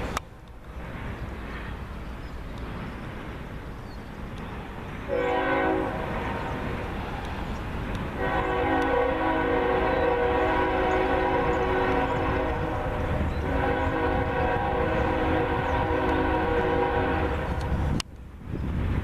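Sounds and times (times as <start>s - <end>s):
locomotive air horn: 5.1s - 6.6s, 8.2s - 17.7s.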